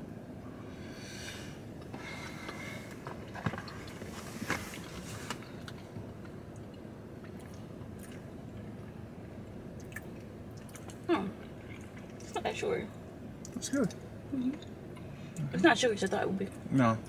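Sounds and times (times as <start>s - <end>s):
low steady hum: 0.0s - 17.0s
mouth chewing clicks and smacks: 9.8s - 11.0s.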